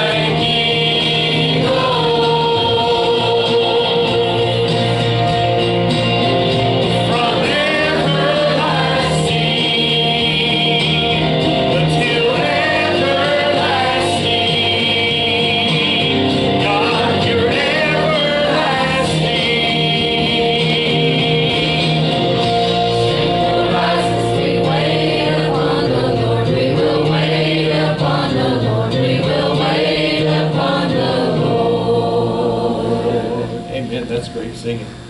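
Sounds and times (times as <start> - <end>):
man singing into microphone: 0.0 - 4.6, 7.1 - 22.2
choir singing gospel song: 0.0 - 33.8.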